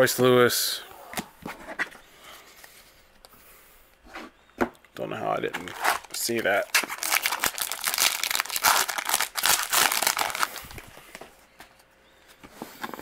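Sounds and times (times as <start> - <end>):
foil wrapper crinkling: 5.6 - 11.1.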